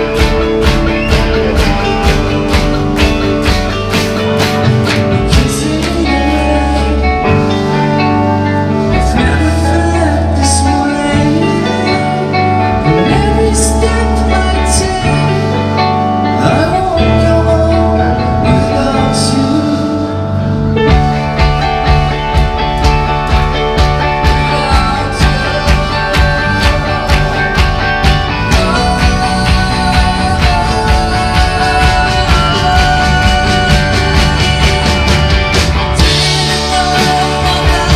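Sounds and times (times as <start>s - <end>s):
rock band playing live: 0.0s - 37.9s
man singing: 4.9s - 21.6s, 23.8s - 37.9s.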